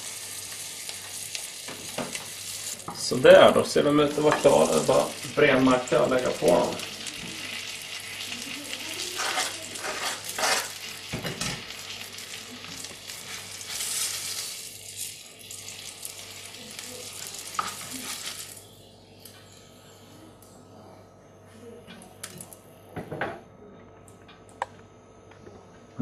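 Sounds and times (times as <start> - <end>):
fish sizzling in frying pan: 0.0 - 2.9, 3.8 - 18.7
spatula scraping pan: 9.1 - 10.9.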